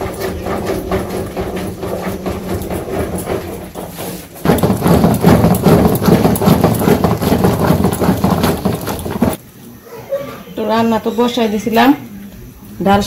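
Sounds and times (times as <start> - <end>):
wooden masher clattering in pot: 0.0 - 9.4.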